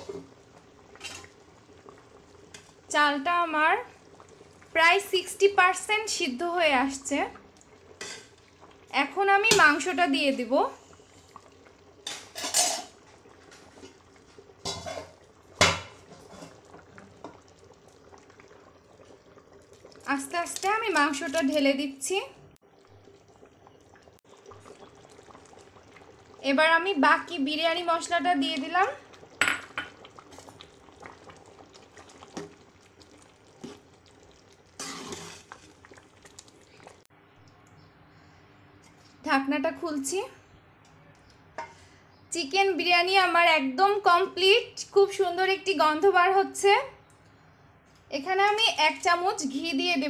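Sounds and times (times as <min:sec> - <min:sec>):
metal pots and utensils clattering: 0:00.0 - 0:00.3, 0:01.0 - 0:01.4, 0:08.0 - 0:08.4, 0:12.0 - 0:17.4, 0:34.8 - 0:35.8, 0:41.6 - 0:41.9.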